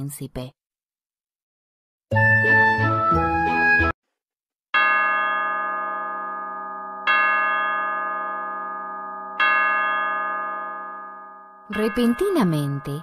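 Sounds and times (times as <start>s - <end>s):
music: 2.1s - 4.0s
clock bell tolling: 4.8s - 13.0s.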